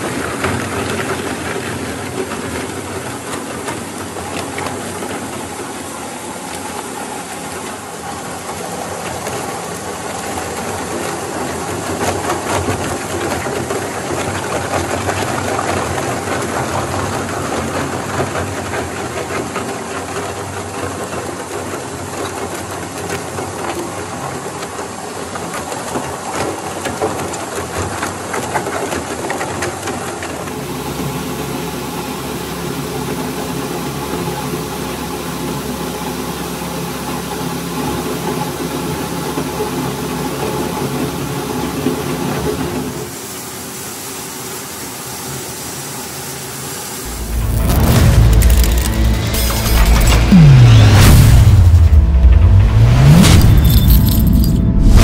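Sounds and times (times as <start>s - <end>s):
shredder crunching plastic: 47.1s - 50.7s.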